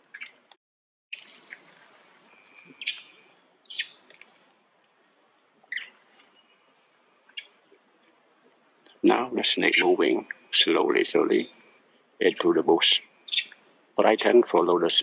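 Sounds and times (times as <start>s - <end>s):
high-pitched insect drone: 8.9s - 15.0s.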